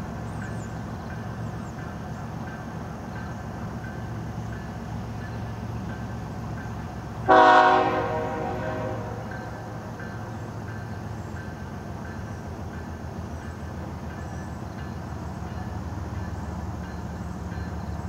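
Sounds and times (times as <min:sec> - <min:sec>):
locomotive air horn blast: 0:07.3 - 0:09.3.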